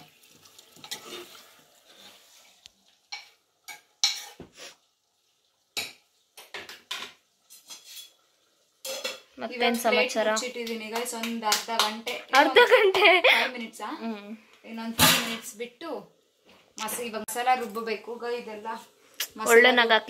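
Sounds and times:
metal utensil scraping a vessel: 0:00.8 - 0:02.4, 0:04.0 - 0:04.4, 0:07.5 - 0:08.2.

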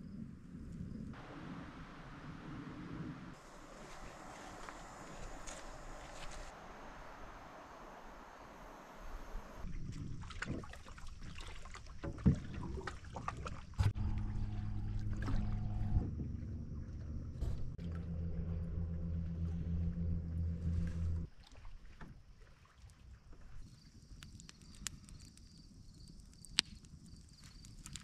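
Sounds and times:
paddle knocks and splashes: 0:09.9 - 0:16.5
boat motor hum: 0:13.7 - 0:21.3.

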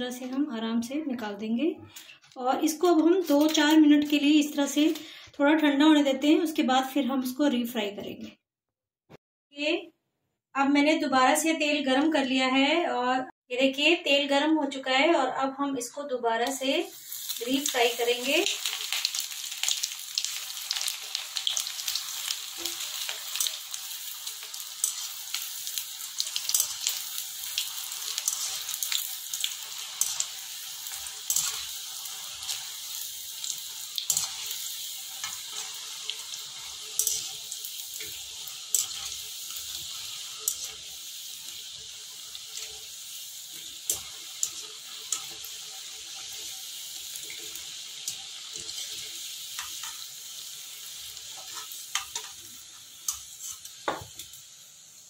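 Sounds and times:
oil sizzling with crackles: 0:00.0 - 0:05.4, 0:16.4 - 0:55.0.

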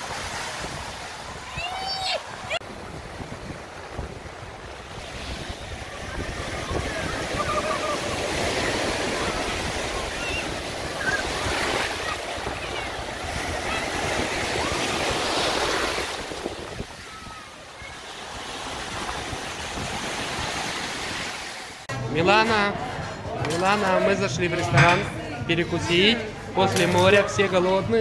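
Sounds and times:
sea waves washing up sand: 0:00.0 - 0:21.9
faint voices of people: 0:05.7 - 0:14.8.

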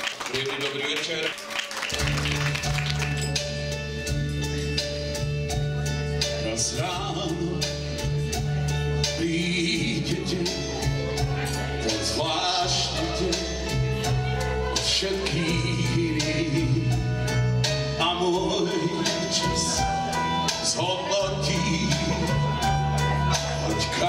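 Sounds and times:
backing track with beat and bass: 0:01.9 - 0:24.0
man singing into microphone: 0:06.4 - 0:08.0, 0:09.0 - 0:17.1, 0:17.9 - 0:24.0.

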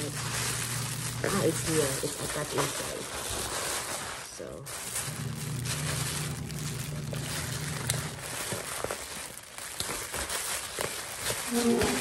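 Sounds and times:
low steady hum: 0:00.0 - 0:02.8, 0:04.5 - 0:09.0
plastic packaging crinkling: 0:00.0 - 0:12.0.

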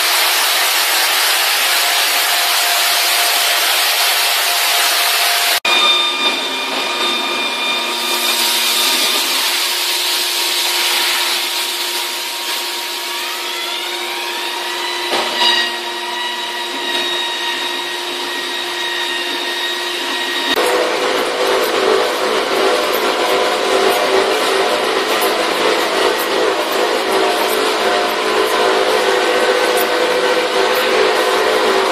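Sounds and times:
water spraying: 0:00.0 - 0:05.6, 0:08.0 - 0:14.6
spray-washing machine humming: 0:00.0 - 0:05.7, 0:06.5 - 0:31.9.

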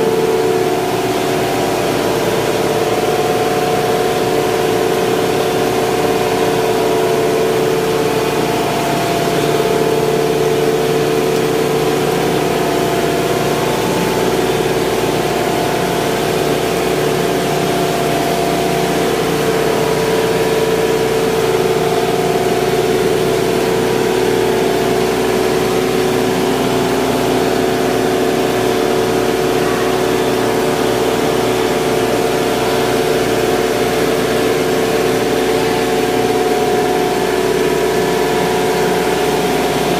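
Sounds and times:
refrigeration machinery hum: 0:00.0 - 0:39.9.

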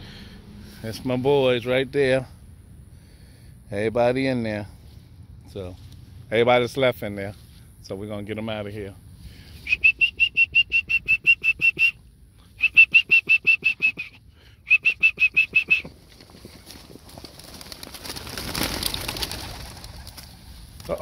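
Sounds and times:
pigeon wings flapping: 0:15.5 - 0:21.0.

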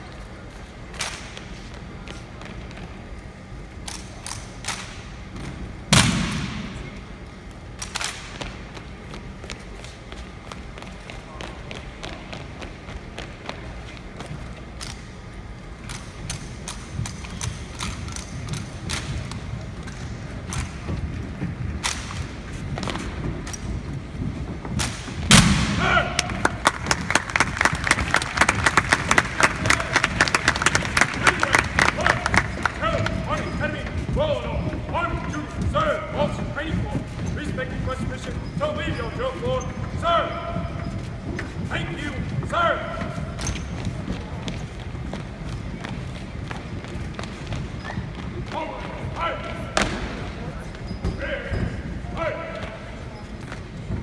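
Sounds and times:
loud echoing thud: 0:05.9 - 0:07.0, 0:25.0 - 0:26.5, 0:49.7 - 0:50.4
people clapping: 0:26.1 - 0:33.3.

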